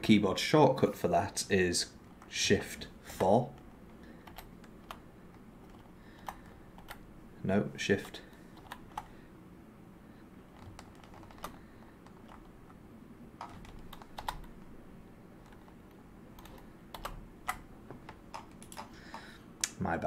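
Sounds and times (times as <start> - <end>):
computer keyboard keypresses: 5.6 - 7.0, 10.5 - 12.5, 13.4 - 14.6, 16.4 - 19.2.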